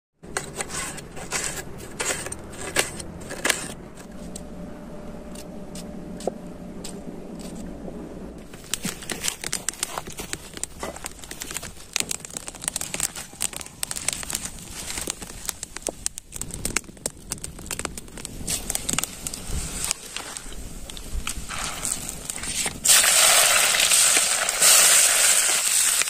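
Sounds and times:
seeds spluttering in hot oil: 0:08.4 - 0:26.0
twig fire crackling and popping: 0:08.4 - 0:26.0.

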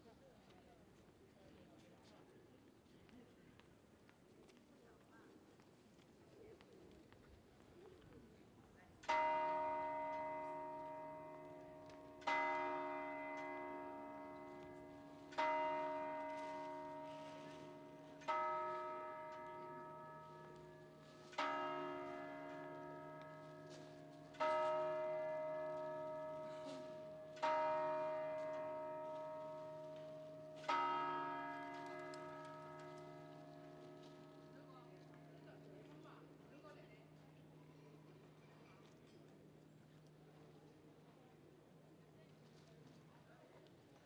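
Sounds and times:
clock tower bell striking: 0:09.1 - 0:37.6.

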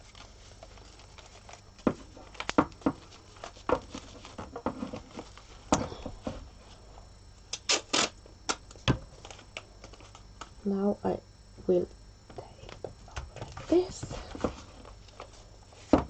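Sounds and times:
plastic clicks and crinkles: 0:00.0 - 0:05.4.

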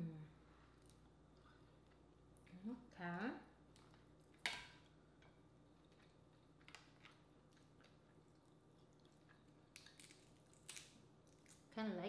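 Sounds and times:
crab shell cracking: 0:05.9 - 0:11.7.

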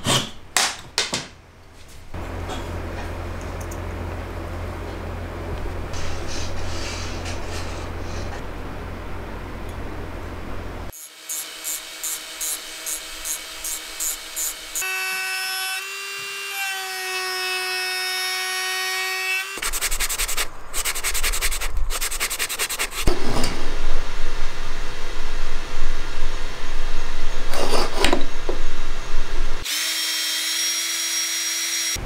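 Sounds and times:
motor whine: 0:09.1 - 0:15.0
rotary tool grinding wood: 0:11.0 - 0:16.9
sanding disc scraping wood: 0:19.6 - 0:23.1.

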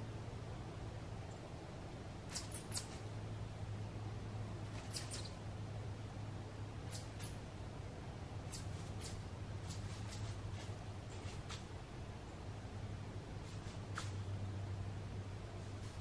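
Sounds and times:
low steady hum: 0:00.0 - 0:16.0
small animal chirps: 0:02.3 - 0:03.0, 0:04.8 - 0:05.4, 0:06.9 - 0:07.4, 0:08.5 - 0:10.4.

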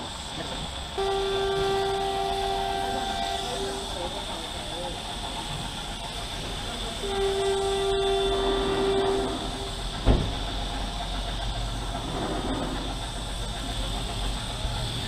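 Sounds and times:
horn steady note: 0:01.0 - 0:04.3, 0:07.0 - 0:09.8
sharp thump: 0:10.0 - 0:10.4.

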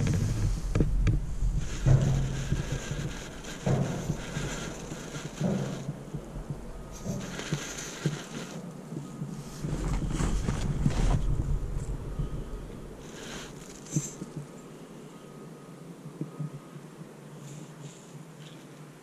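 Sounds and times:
tyres churning snow: 0:00.0 - 0:14.7.

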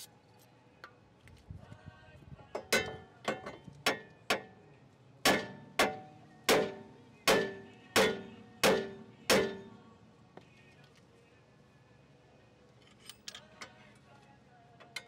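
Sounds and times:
hammer striking metal: 0:05.2 - 0:09.7.

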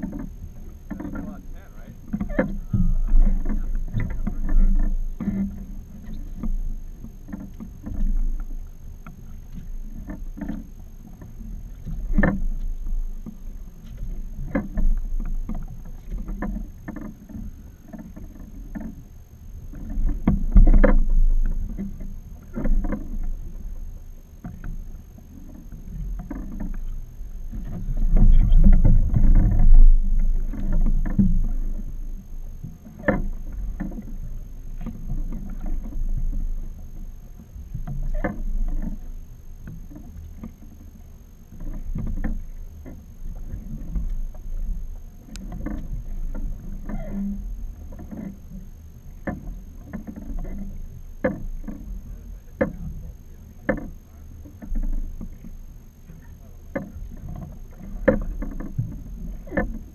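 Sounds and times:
low rumble: 0:00.0 - 0:46.8
knocks and thumps from hull: 0:00.0 - 0:59.9
water lapping at boat hull: 0:00.0 - 0:59.9.

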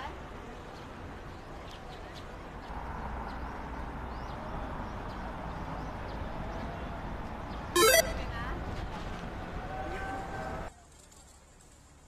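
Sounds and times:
distant traffic hum: 0:00.0 - 0:10.7.

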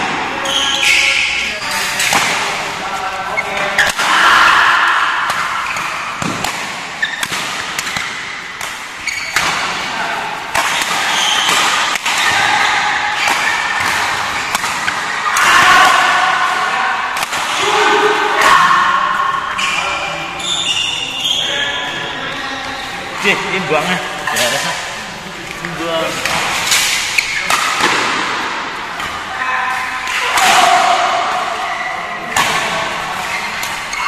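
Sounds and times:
rackets striking shuttlecock: 0:05.2 - 0:09.9, 0:10.5 - 0:16.2, 0:17.1 - 0:17.7, 0:26.2 - 0:29.2.

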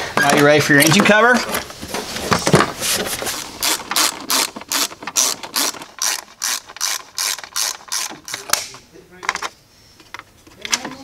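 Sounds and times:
ratchet pawl clicking: 0:03.6 - 0:08.4.

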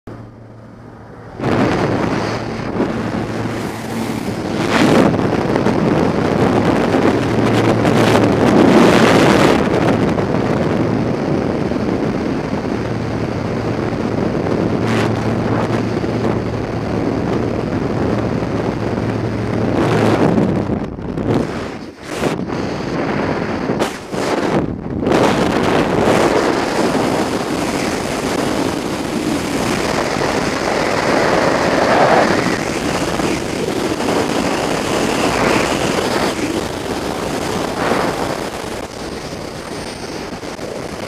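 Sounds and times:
aircraft engine and propeller drone: 0:00.1 - 0:41.0
wind rushing through plane door: 0:00.4 - 0:10.2, 0:19.1 - 0:41.0.

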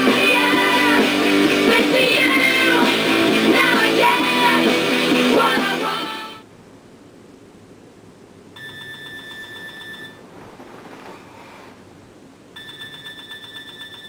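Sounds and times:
alarm clock beeping: 0:08.6 - 0:10.2, 0:12.6 - 0:14.0.

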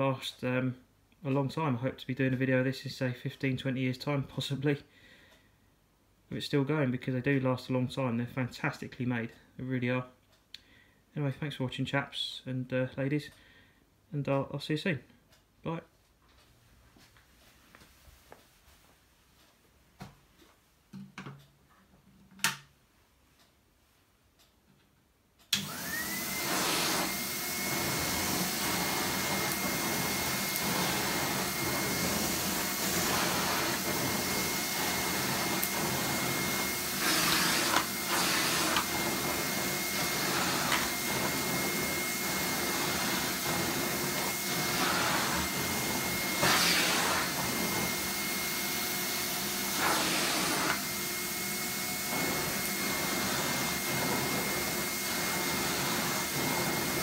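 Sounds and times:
vacuum floor tool on rug: 0:25.5 - 0:57.0
vacuum cleaner motor whine: 0:25.6 - 0:57.0.

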